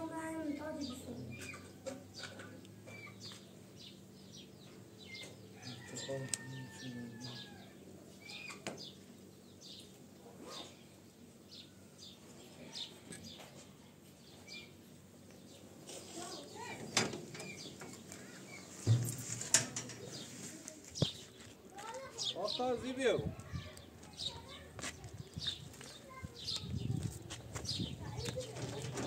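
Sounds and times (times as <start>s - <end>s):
small birds chirping: 0.1s - 19.2s, 19.9s - 29.0s
low thump: 18.8s - 19.6s
sharp knocks: 18.8s - 20.0s.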